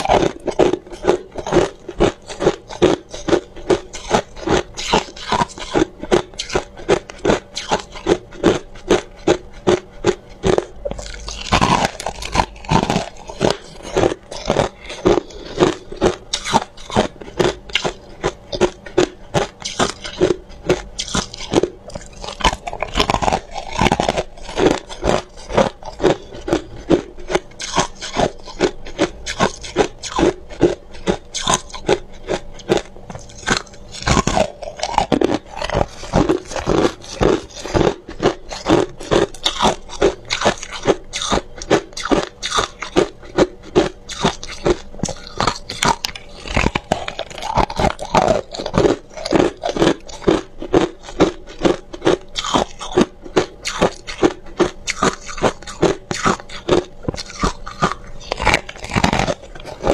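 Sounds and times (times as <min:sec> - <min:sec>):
crushed ice crunching: 0:19.4 - 0:27.0, 0:31.4 - 0:41.4, 0:44.1 - 0:54.0.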